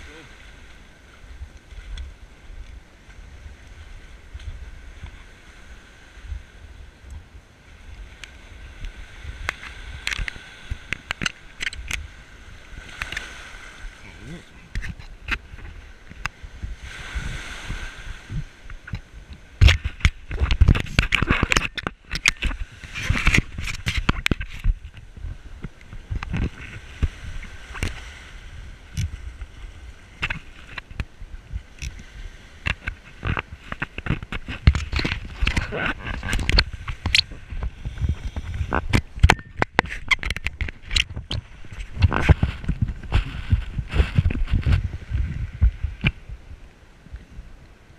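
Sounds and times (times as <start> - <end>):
surf sloshing and splashing: 0.0 - 47.9
footsteps on wet seaweed and sand: 0.3 - 6.6, 14.8 - 47.2
gear knocks and scrapes: 19.6 - 25.0, 32.6 - 46.2.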